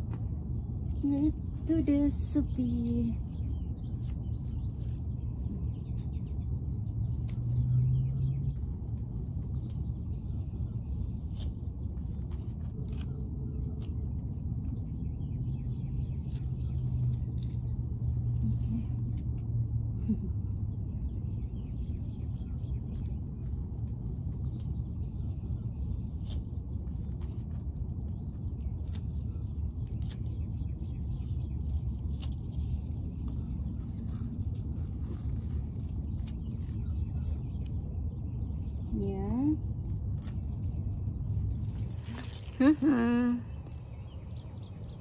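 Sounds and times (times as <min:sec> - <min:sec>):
scissors snipping onion stalks: 0:00.0 - 0:19.5, 0:20.1 - 0:43.2
low rumble: 0:31.7 - 0:45.0.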